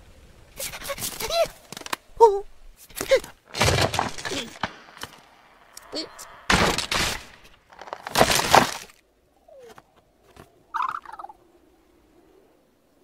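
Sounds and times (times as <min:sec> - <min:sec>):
cartoon character chattering: 0:00.6 - 0:01.6.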